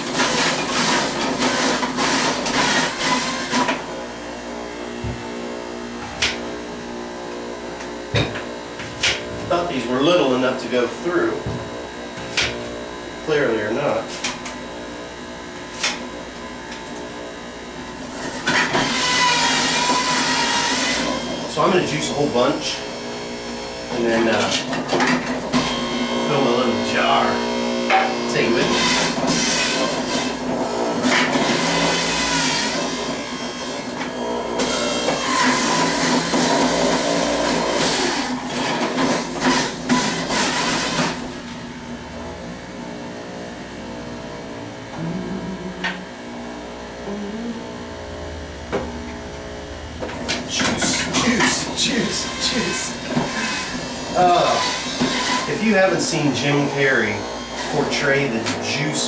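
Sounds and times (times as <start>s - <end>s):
juicer motor whirring: 0.0s - 59.0s.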